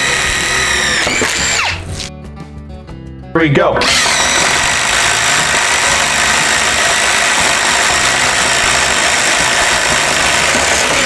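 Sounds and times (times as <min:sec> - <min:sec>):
impact driver hammering into wood: 0:00.0 - 0:01.7, 0:03.8 - 0:11.0.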